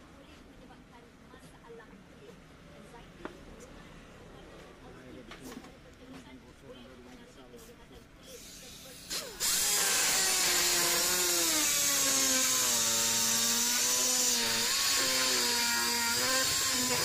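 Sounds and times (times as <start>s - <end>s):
power screwdriver whine: 9.1s - 17.0s.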